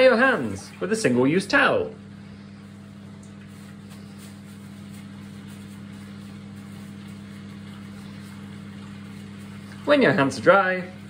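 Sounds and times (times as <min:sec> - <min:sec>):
steady low hum: 0:00.0 - 0:11.0
paper towel rustling: 0:02.3 - 0:11.0.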